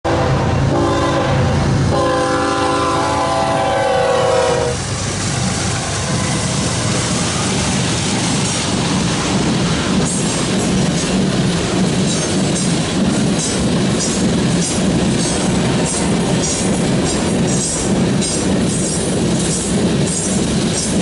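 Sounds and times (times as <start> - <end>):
locomotive air horn blasts: 0.0 - 4.8
diesel engines rumbling: 0.2 - 21.0
train wheels rolling: 1.7 - 21.0.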